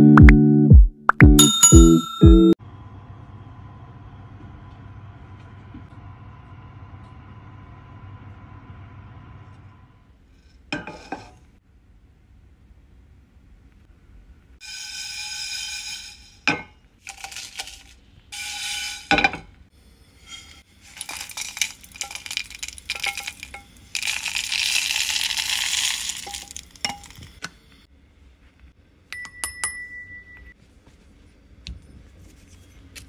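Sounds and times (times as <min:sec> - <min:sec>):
seeds poured into metal jar: 0:14.6 - 0:16.4, 0:17.0 - 0:19.2, 0:20.3 - 0:27.2
spices rattling in a pan: 0:14.6 - 0:19.2, 0:20.2 - 0:27.4.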